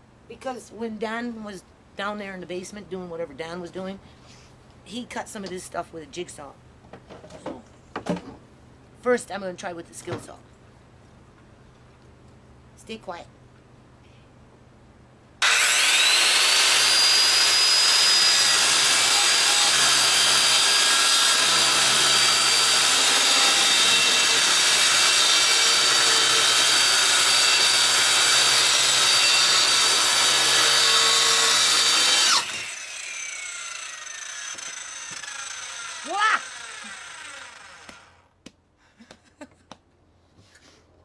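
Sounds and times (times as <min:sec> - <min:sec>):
circular saw whining: 0:15.4 - 0:38.3.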